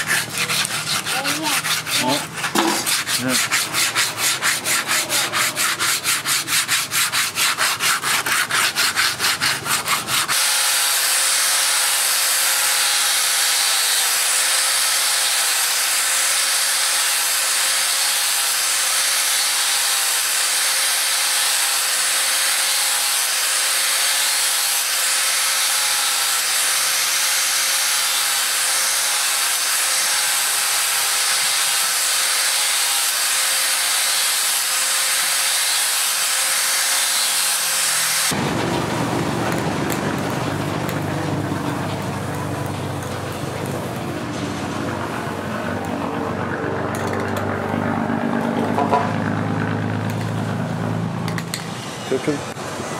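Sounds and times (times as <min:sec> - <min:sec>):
angle grinder sanding metal: 0:00.0 - 0:38.4
sandpaper rubbing on wood: 0:00.0 - 0:38.4.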